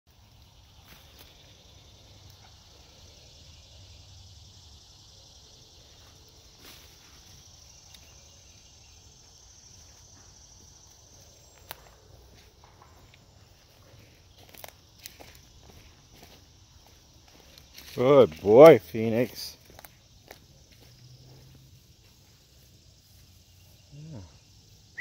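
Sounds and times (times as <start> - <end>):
insects droning: 0.1 - 25.0
twigs snapping underfoot: 11.6 - 11.9, 14.4 - 16.3, 19.6 - 20.4.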